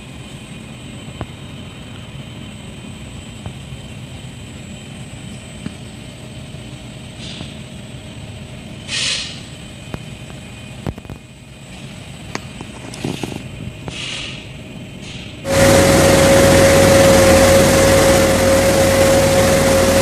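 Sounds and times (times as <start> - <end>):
hiss of air: 7.1 - 7.7, 8.8 - 9.6, 13.8 - 20.0
machinery rumbling: 15.4 - 20.0
thin high whine: 15.4 - 20.0.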